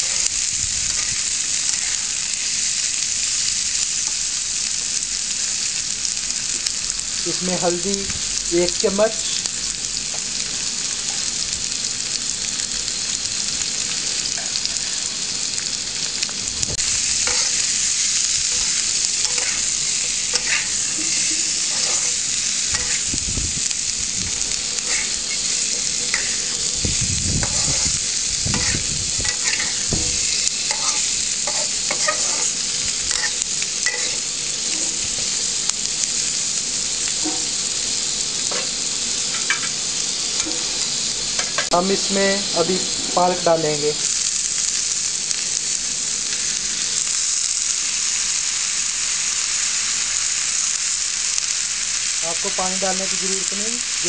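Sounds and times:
vegetables sizzling in hot oil: 0.0s - 54.0s
metal spatula scraping pan: 18.5s - 19.7s, 20.3s - 23.1s, 24.8s - 26.6s, 27.4s - 29.9s, 30.7s - 35.0s.

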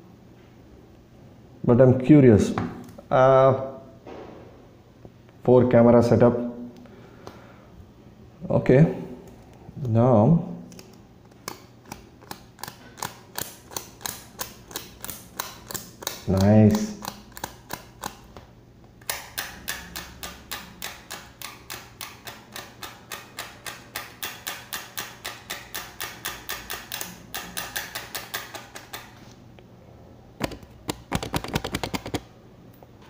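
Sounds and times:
fingers tapping on plastic: 30.4s - 32.2s.

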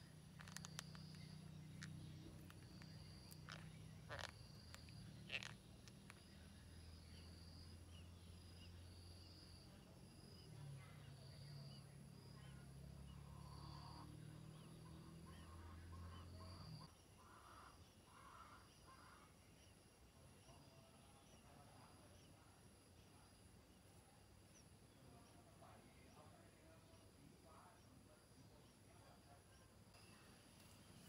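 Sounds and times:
faint high chirps: 0.0s - 16.9s.

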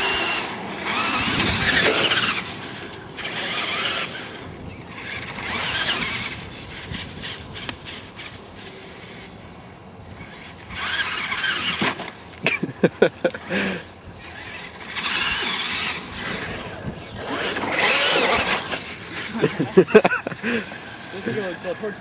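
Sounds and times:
toy truck crashing and tumbling: 0.0s - 8.4s, 10.3s - 12.2s, 14.3s - 20.1s
electric motor whine: 0.0s - 22.0s
tyres churning grass: 0.0s - 22.0s.

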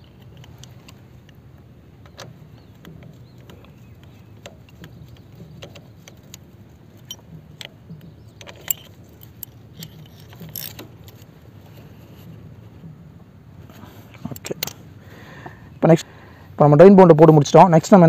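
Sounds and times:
socket wrench clicking: 2.0s - 11.2s.

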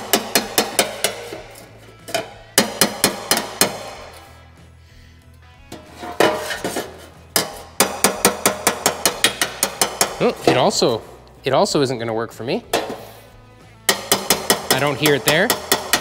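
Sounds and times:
hammer striking sheet metal: 0.0s - 4.2s, 5.7s - 11.1s, 12.7s - 13.2s, 13.9s - 16.0s.

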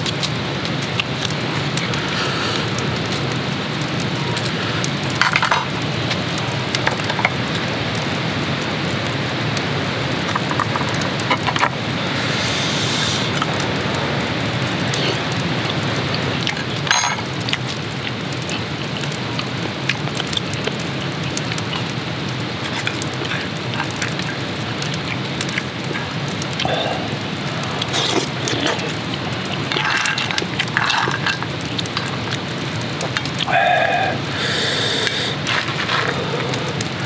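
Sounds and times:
heavy rain: 0.0s - 37.0s.

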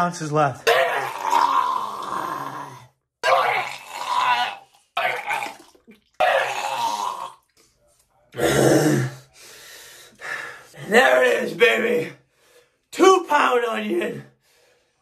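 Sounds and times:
man retching and gagging: 0.6s - 7.6s, 8.3s - 9.3s.

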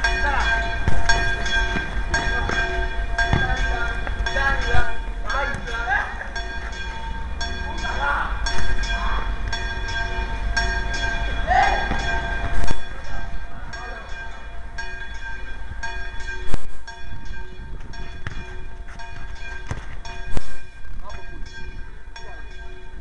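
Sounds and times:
football kicked on concrete: 3.3s - 4.2s, 18.2s - 18.5s.

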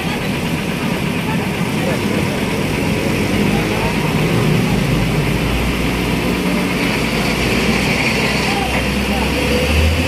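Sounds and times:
truck diesel engine under load: 0.0s - 10.0s.

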